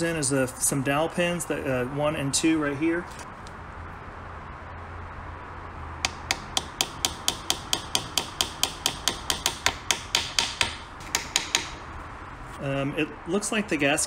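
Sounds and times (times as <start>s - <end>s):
small hammer tapping pins: 6.0s - 11.8s.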